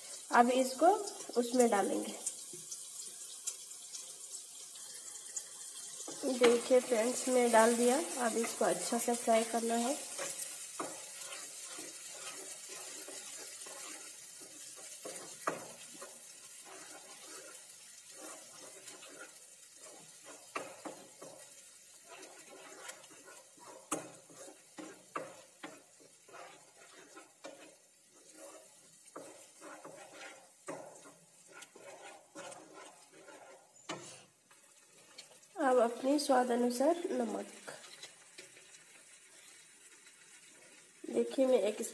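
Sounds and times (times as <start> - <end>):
faint sizzle: 0.0 - 41.9
spatula scraping thick paste in pan: 5.3 - 35.5, 36.5 - 41.5
spatula knocking on pan: 10.0 - 17.4, 18.2 - 27.8, 29.1 - 34.1.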